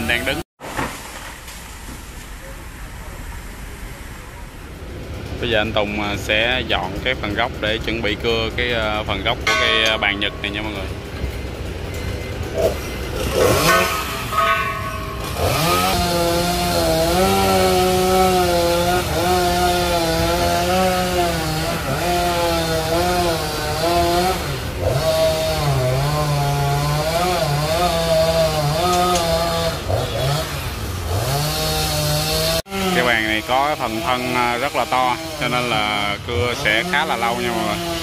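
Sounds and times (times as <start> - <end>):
chainsaw cutting wood: 9.1 - 38.0.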